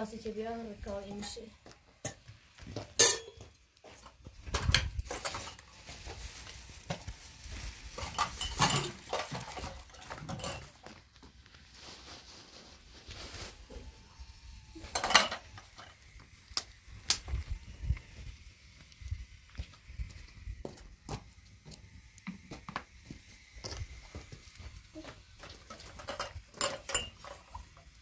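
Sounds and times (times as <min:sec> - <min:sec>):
metal pans clinking together: 0:03.0 - 0:03.4, 0:08.0 - 0:10.8, 0:26.0 - 0:27.6.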